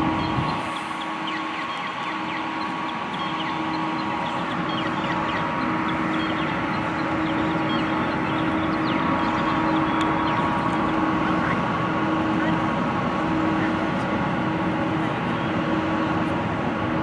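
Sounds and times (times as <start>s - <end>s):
small birds chirping: 0.0s - 12.7s
traffic and machinery hum: 0.0s - 17.0s.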